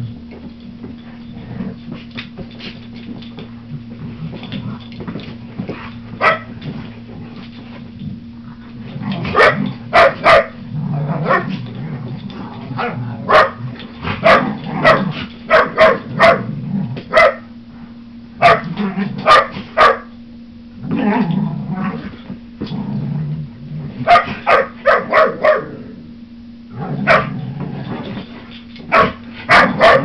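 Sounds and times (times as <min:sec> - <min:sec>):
dogs scuffling: 0:00.1 - 0:10.5
dogs barking: 0:06.2 - 0:06.5, 0:09.3 - 0:10.6, 0:12.8 - 0:13.6, 0:14.2 - 0:16.5, 0:17.1 - 0:17.5, 0:18.4 - 0:20.1, 0:24.0 - 0:25.7, 0:27.0 - 0:27.4, 0:28.9 - 0:30.0.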